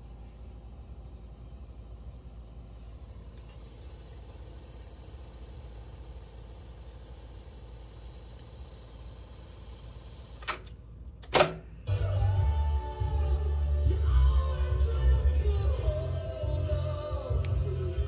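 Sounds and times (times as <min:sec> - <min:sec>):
cassette deck whirring: 0:00.0 - 0:18.0
music from cassette: 0:11.8 - 0:18.0.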